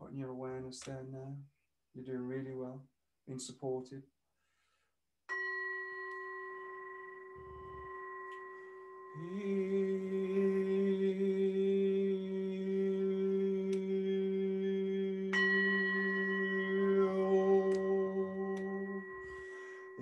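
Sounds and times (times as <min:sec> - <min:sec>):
singing bowl ringing: 0:05.3 - 0:11.9, 0:12.5 - 0:20.0
man humming low note: 0:09.2 - 0:20.0.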